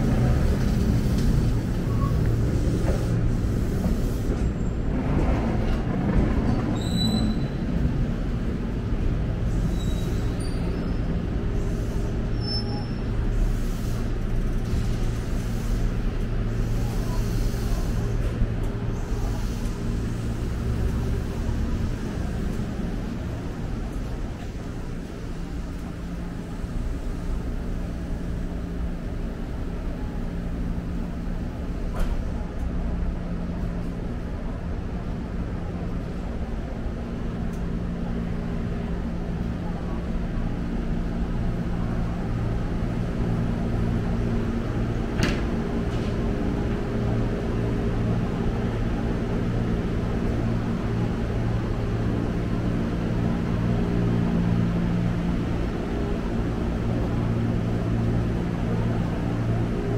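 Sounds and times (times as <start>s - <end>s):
electric train rumble and hum: 0.0s - 59.9s.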